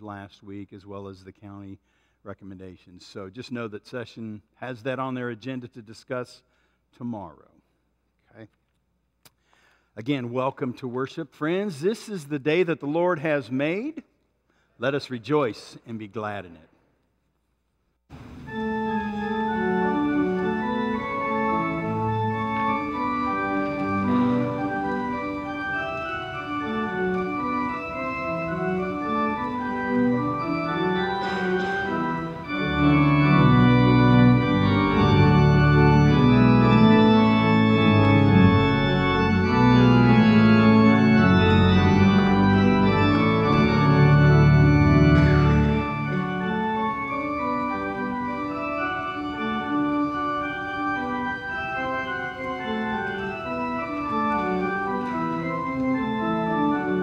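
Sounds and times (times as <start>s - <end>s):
church organ chords: 18.2s - 57.0s.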